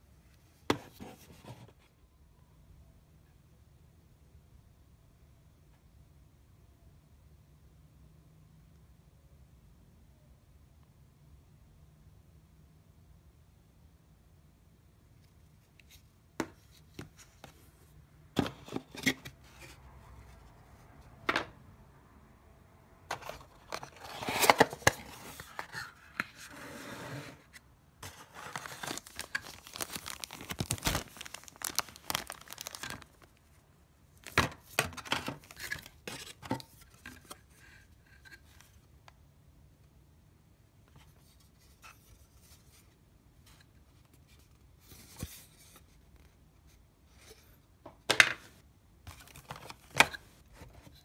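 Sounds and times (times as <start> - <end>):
plastic packaging crinkling: 28.3 - 33.4.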